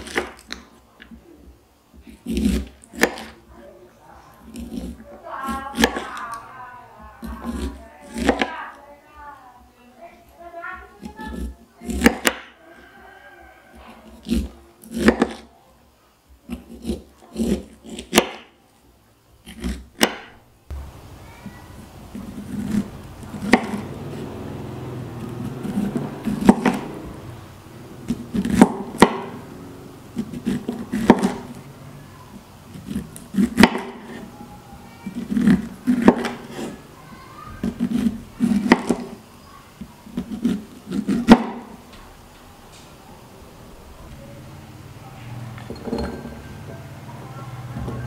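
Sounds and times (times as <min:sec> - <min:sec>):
knife scraping through corn: 0:02.0 - 0:03.4, 0:04.4 - 0:05.7, 0:13.8 - 0:15.5, 0:16.5 - 0:18.2, 0:22.1 - 0:24.2, 0:30.1 - 0:31.5, 0:32.7 - 0:34.4, 0:35.0 - 0:36.9, 0:37.5 - 0:39.2, 0:40.0 - 0:41.7.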